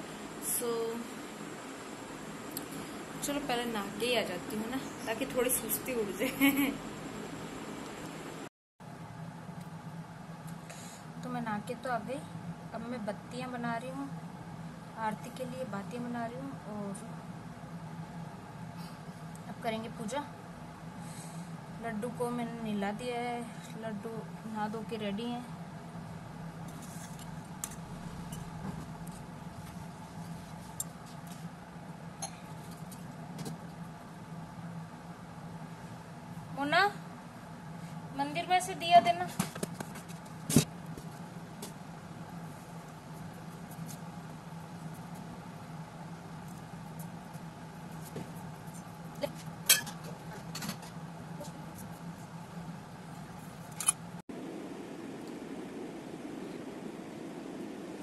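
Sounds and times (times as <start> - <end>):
low hum: 0.0 - 39.2, 51.1 - 58.0.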